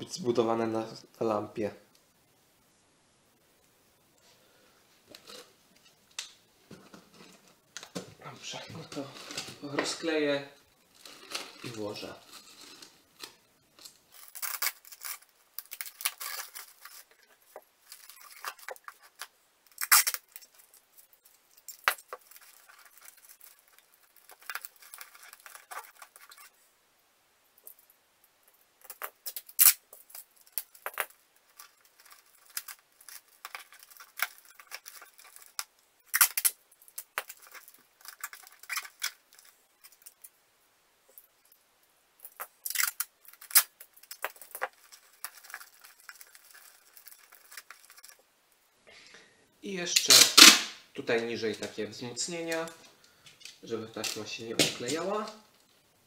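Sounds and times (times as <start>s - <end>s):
packing tape peeling: 11.0s - 20.8s, 21.5s - 26.5s, 28.8s - 40.3s, 42.2s - 48.2s, 50.0s - 50.6s.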